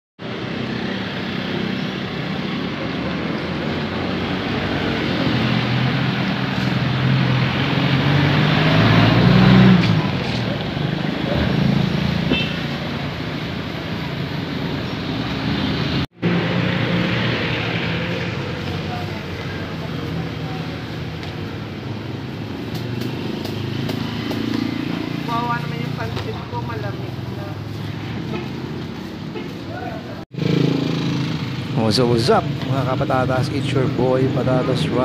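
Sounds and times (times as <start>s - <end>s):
passing vehicles hum: 0.2s - 35.0s
vehicle engine passing: 0.2s - 35.0s.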